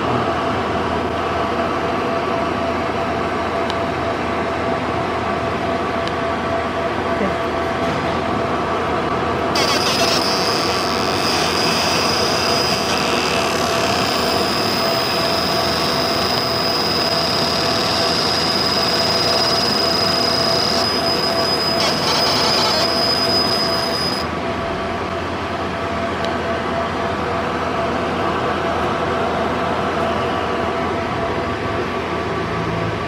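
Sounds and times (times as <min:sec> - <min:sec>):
laser engraving machine whine: 0:09.4 - 0:24.8.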